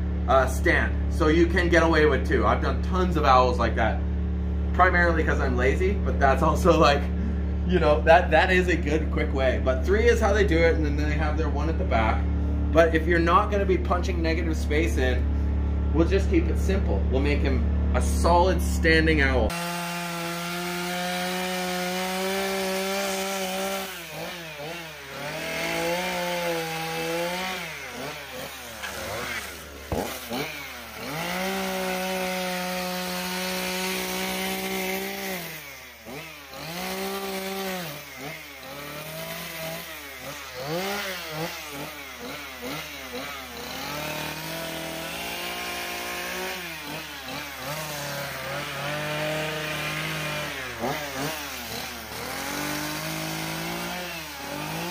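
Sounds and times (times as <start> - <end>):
chainsaw cutting wood: 19.5 - 54.9.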